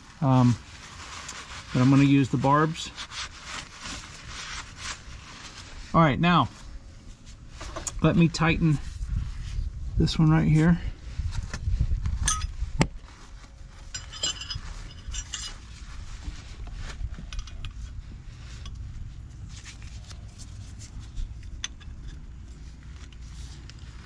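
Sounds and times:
steady low rumble: 0.0 - 24.0
wrenches clinking on metal: 13.8 - 15.8.

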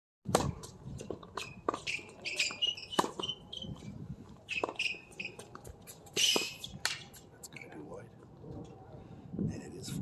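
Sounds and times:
rackets hitting tennis ball: 0.3 - 7.3
shoes squeaking on court: 0.4 - 7.7.

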